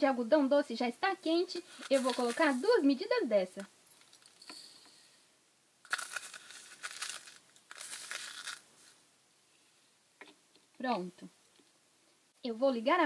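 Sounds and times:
sprinkles rattling in plastic scoop: 1.8s - 2.8s, 5.9s - 8.6s.

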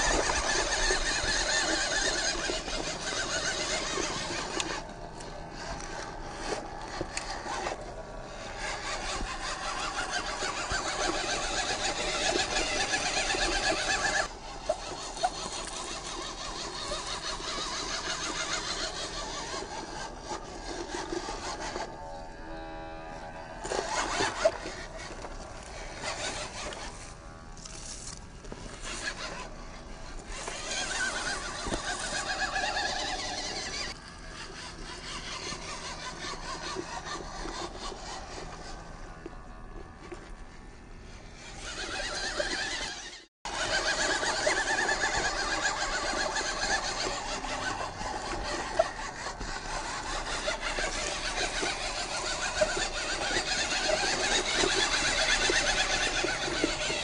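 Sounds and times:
toy car motor whining: 0.0s - 57.0s.

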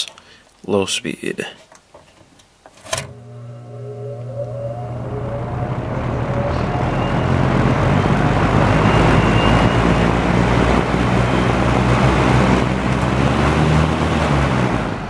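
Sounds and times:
box fan motor humming: 2.9s - 15.0s
faint whine: 3.0s - 13.6s.

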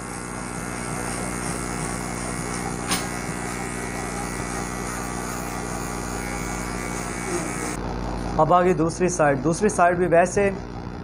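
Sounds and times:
electric hair clipper buzzing: 0.0s - 8.4s.

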